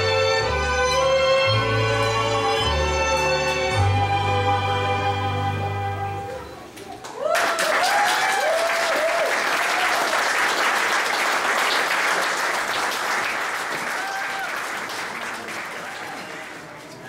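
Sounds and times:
audience applauding: 7.0s - 17.0s.

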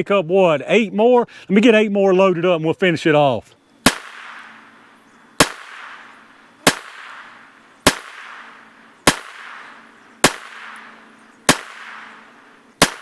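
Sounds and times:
pistol shots with echo: 3.8s - 4.6s, 5.4s - 13.0s.

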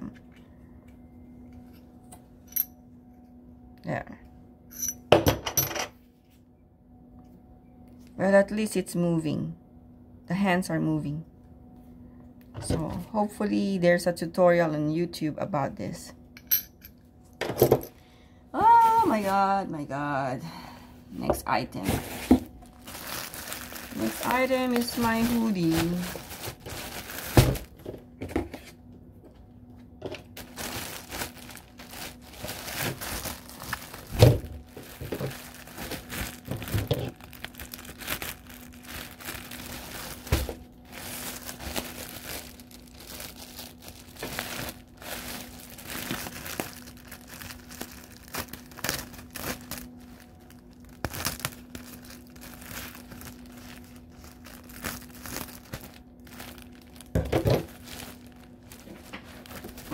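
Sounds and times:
plastic bag crinkling: 21.7s - 28.0s, 30.0s - 59.9s.

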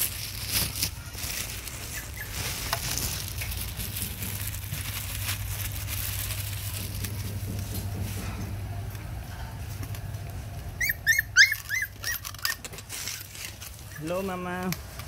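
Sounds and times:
plastic bag crinkling: 0.0s - 8.6s
steady low hum: 1.6s - 14.0s.

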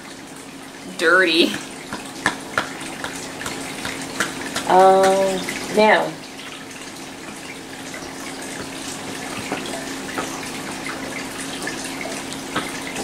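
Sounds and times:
light taps: 1.9s - 5.2s.

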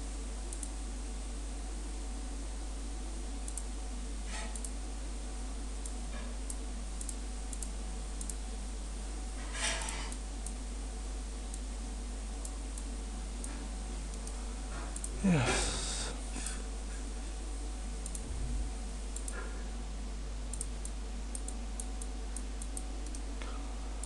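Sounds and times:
low electrical hum: 0.0s - 24.0s
computer mouse clicks: 0.5s - 0.7s, 3.4s - 3.7s, 4.3s - 4.8s, 5.8s - 8.4s, 12.4s - 14.4s, 18.0s - 18.3s, 19.1s - 19.5s, 20.5s - 23.3s
microphone hiss: 11.1s - 19.3s.

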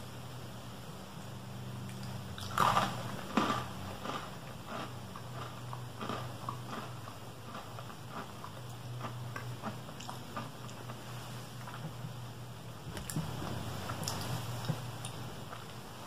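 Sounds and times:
steady low hum: 0.0s - 16.0s
biscuit crunching: 1.9s - 11.9s.

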